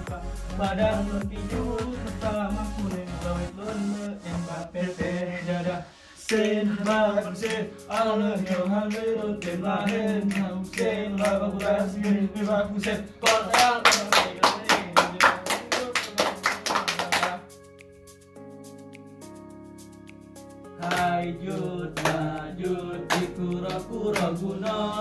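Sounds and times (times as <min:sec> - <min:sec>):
men chanting in unison: 0:00.1 - 0:15.8, 0:20.8 - 0:25.0
fast percussion strikes: 0:06.3 - 0:17.5.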